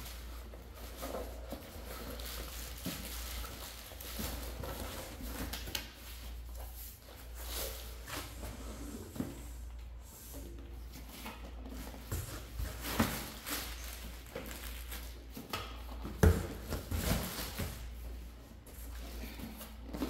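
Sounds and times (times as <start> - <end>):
bubble wrap rustling: 0.0 - 8.1, 11.9 - 15.8.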